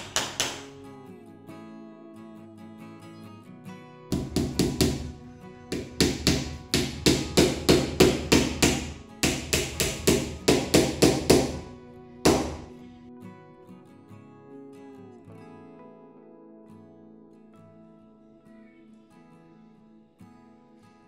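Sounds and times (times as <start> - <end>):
hammer striking a nail: 0.0 - 0.7, 4.1 - 11.7, 12.3 - 12.8
acoustic guitar music: 0.0 - 21.0.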